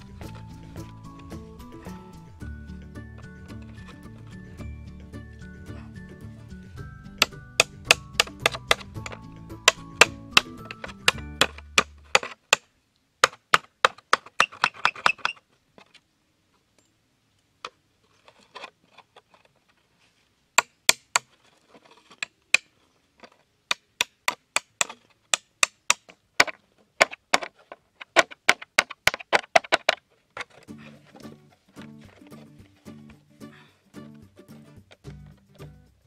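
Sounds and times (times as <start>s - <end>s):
hammer tapping nail through plastic: 7.2s - 12.6s.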